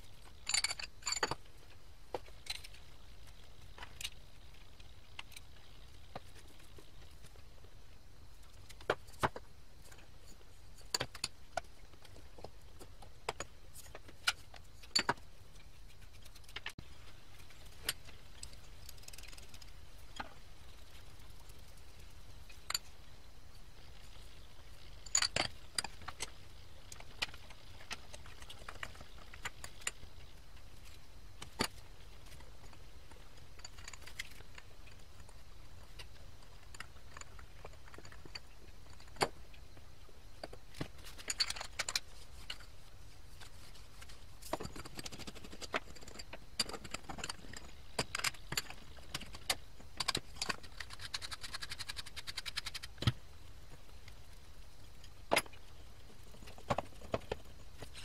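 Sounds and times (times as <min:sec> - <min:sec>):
metal parts clinking: 0:00.2 - 0:01.4.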